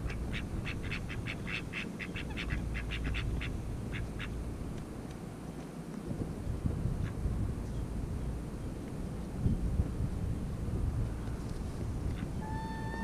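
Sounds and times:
gull calling: 0:12.2 - 0:13.0.

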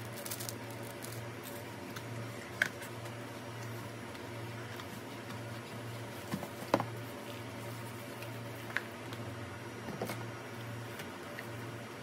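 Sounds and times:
plastic and cardboard packaging handled: 0:00.0 - 0:01.7
steady low hum: 0:00.0 - 0:12.0.

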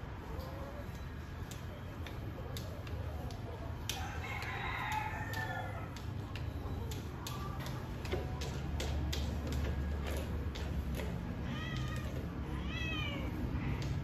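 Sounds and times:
rooster crowing: 0:03.9 - 0:05.9.

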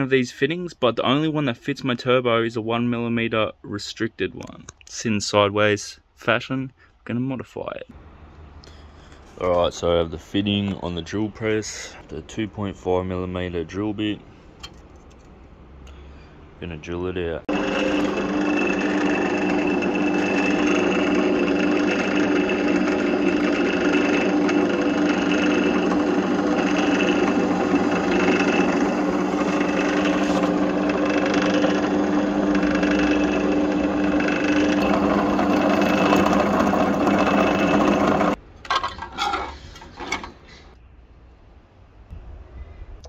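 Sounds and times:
drill press motor whining: 0:17.5 - 0:38.4.

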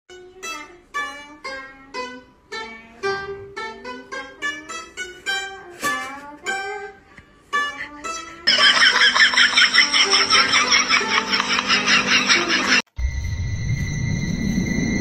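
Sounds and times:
plucked lute melody: 0:00.1 - 0:08.5.

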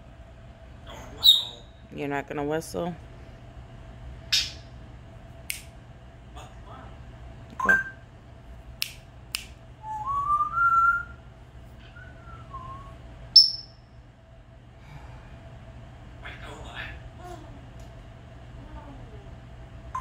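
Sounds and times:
parrot squeak: 0:01.2 - 0:01.7, 0:13.4 - 0:13.7
parrot whistle rising in steps: 0:09.8 - 0:11.2, 0:11.8 - 0:13.8.

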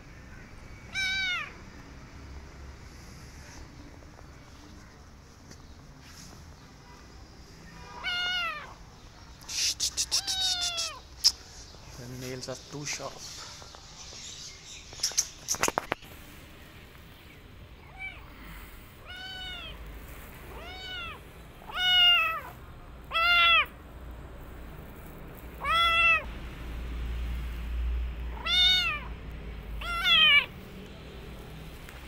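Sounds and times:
kitten meowing: 0:00.9 - 0:01.6, 0:08.0 - 0:08.8, 0:09.8 - 0:11.4, 0:19.0 - 0:19.8, 0:20.5 - 0:23.7, 0:25.6 - 0:26.3, 0:28.3 - 0:29.2, 0:29.8 - 0:30.5.

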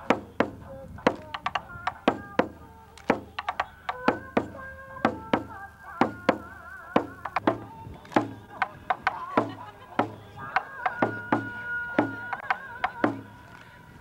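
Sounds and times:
taiko drum beats: 0:00.0 - 0:13.3
held melody line: 0:00.0 - 0:13.6.

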